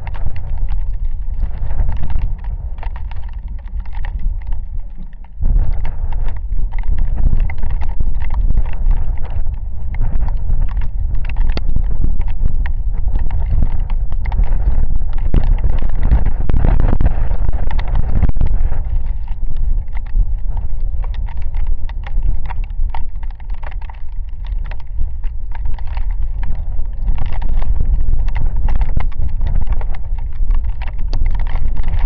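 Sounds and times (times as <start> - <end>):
raindrops crackling: 0.0 - 32.0
wind buffeting microphone: 0.0 - 32.0.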